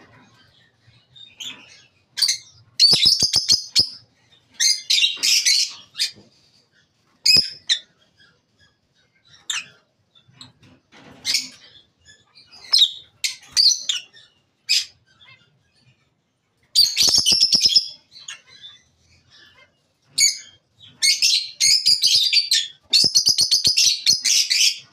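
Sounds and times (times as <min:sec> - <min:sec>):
lovebirds chirping: 0:00.0 - 0:24.9.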